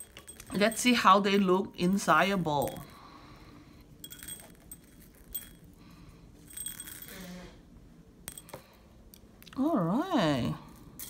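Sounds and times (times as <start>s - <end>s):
glass beads clinking in bowl: 0.0s - 3.0s, 4.0s - 5.8s, 6.4s - 7.2s.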